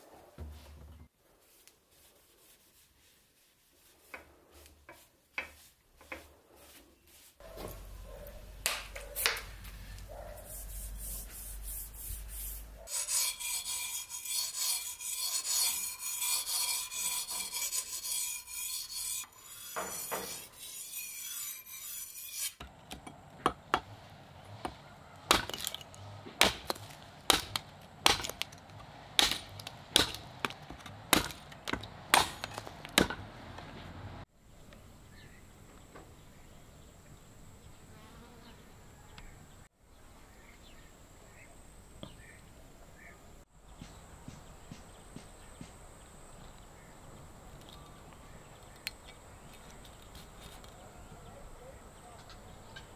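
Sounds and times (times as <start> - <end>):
knife chopping wood: 24.6 - 28.6, 29.2 - 33.3.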